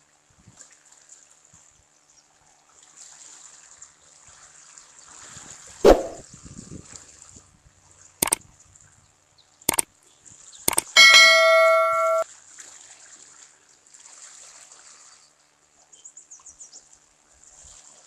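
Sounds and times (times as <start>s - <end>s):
mouse clicks: 5.9s - 6.2s, 10.7s - 12.2s
bell ding: 10.7s - 12.2s.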